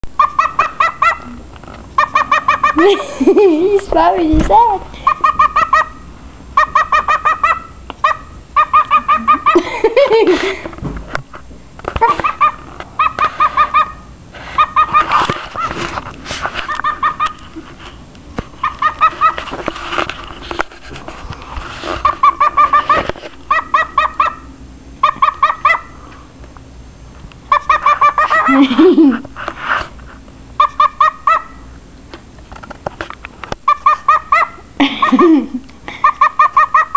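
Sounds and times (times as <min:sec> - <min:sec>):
cockatiel barking calls: 0:00.2 - 0:01.3, 0:02.0 - 0:02.8, 0:05.0 - 0:06.0, 0:06.6 - 0:09.6, 0:12.0 - 0:15.7, 0:16.7 - 0:17.4, 0:18.6 - 0:19.4, 0:23.5 - 0:26.0, 0:27.5 - 0:28.5, 0:30.6 - 0:31.6, 0:33.7 - 0:34.7, 0:36.0 - 0:36.9.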